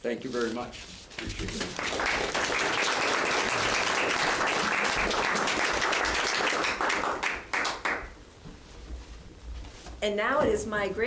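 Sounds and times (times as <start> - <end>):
audience applauding: 1.2 - 8.2.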